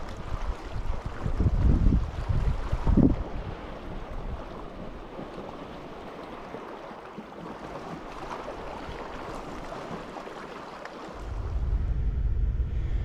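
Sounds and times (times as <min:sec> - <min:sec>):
wind noise on microphone: 0:00.0 - 0:04.6, 0:11.2 - 0:13.0.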